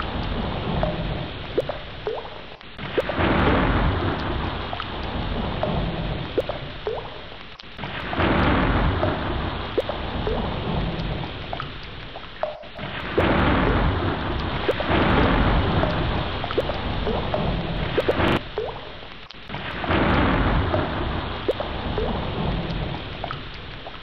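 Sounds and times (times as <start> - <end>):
heavy rain: 0.0 - 24.0
drops plinking: 0.8 - 3.2, 12.4 - 12.9
rolling thunder: 2.8 - 6.8, 7.8 - 11.6, 12.7 - 18.5, 19.5 - 23.2.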